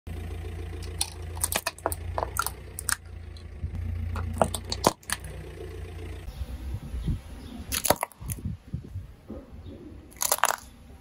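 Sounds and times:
car engine idling: 0:00.1 - 0:08.3
plastic toy cracking under tire: 0:00.8 - 0:03.0, 0:07.7 - 0:08.4, 0:10.1 - 0:10.7.

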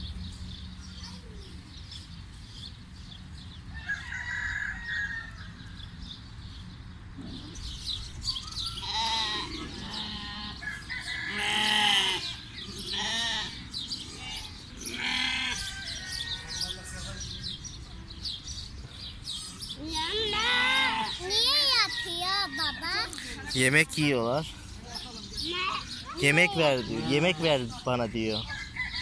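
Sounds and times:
small birds chirping: 0:00.0 - 0:29.0
goats bleating: 0:08.8 - 0:10.6, 0:11.3 - 0:15.6, 0:20.3 - 0:21.2, 0:26.5 - 0:27.5.

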